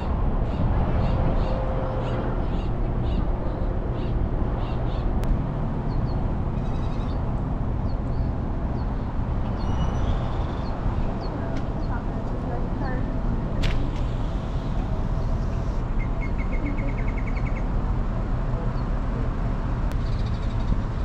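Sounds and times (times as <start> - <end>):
birds calling: 5.8 - 12.4.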